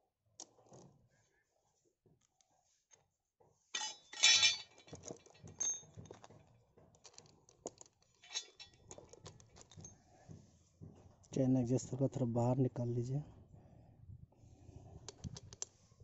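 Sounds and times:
steel parts clinking and rattling: 0:03.8 - 0:06.4, 0:07.0 - 0:10.0.

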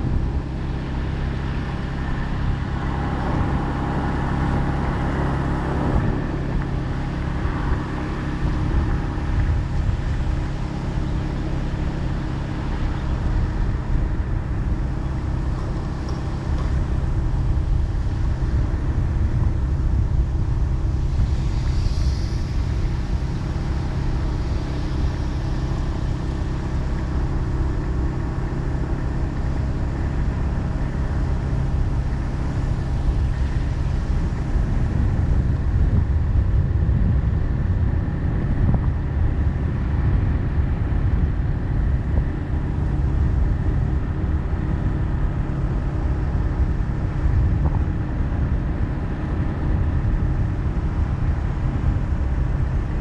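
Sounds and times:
vehicle road noise: 0:00.0 - 0:53.0.

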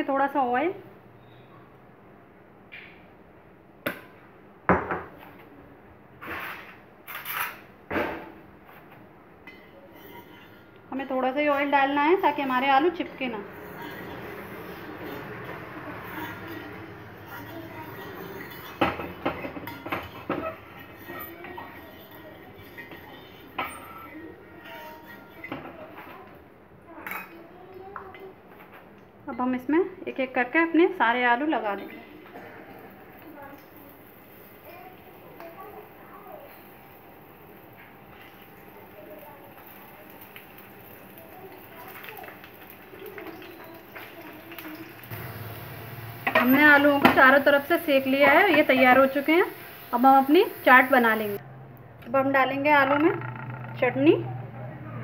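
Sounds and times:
spoon scraping metal griddle: 0:09.5 - 0:10.8, 0:11.6 - 0:23.9, 0:45.0 - 0:51.4
potatoes sizzling in oil: 0:11.0 - 0:19.9, 0:33.0 - 0:51.4.

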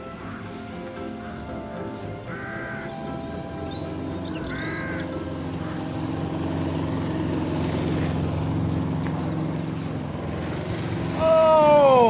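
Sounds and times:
sweeper engine humming: 0:00.0 - 0:12.0
crow cawing: 0:02.3 - 0:07.4.

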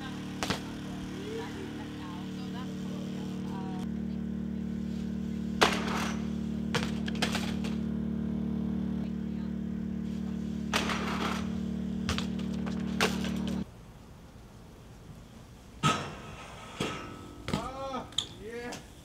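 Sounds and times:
metallic knocks and rattles of bike: 0:00.0 - 0:02.2, 0:05.6 - 0:07.9, 0:10.6 - 0:13.7
bike hitting concrete: 0:00.0 - 0:03.8, 0:05.4 - 0:08.1, 0:10.2 - 0:13.7, 0:15.8 - 0:18.9
low machine hum: 0:00.0 - 0:19.0.

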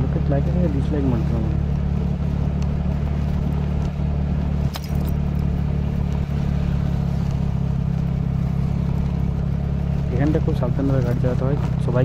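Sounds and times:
motorcycle engine hum: 0:00.0 - 0:12.0
road and wind noise: 0:00.0 - 0:12.0
sharp click: 0:04.7 - 0:05.2.

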